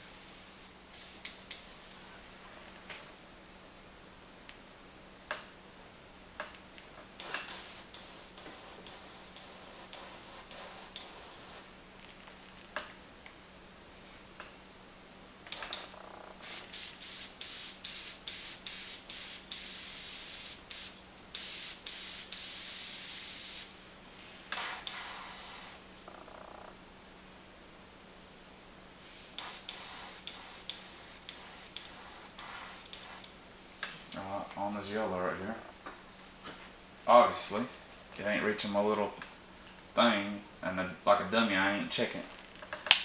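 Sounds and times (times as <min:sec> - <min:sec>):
airbrush spraying hiss: 0:00.0 - 0:02.0, 0:07.2 - 0:11.7, 0:15.5 - 0:25.9, 0:29.0 - 0:33.4.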